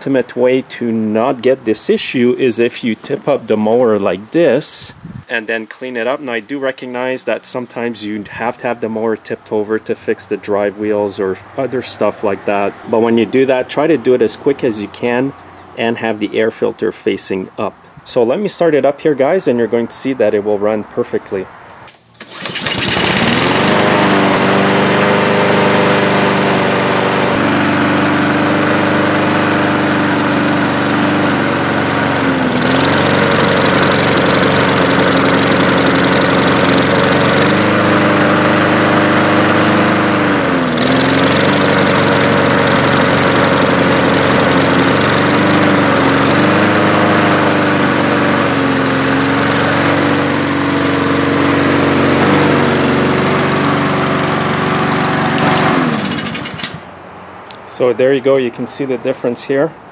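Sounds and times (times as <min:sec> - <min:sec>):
lawn mower engine running: 0:21.9 - 0:57.5.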